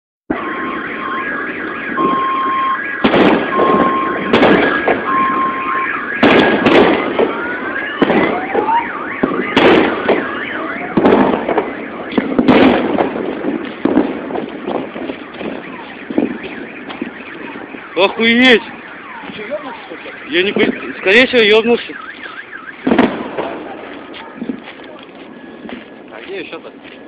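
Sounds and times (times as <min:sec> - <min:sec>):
car alarm: 0:00.3 - 0:14.0, 0:14.6 - 0:23.4, 0:25.3 - 0:25.8
loud shock wave bangs: 0:03.0 - 0:05.1, 0:06.2 - 0:07.4, 0:10.9 - 0:14.9.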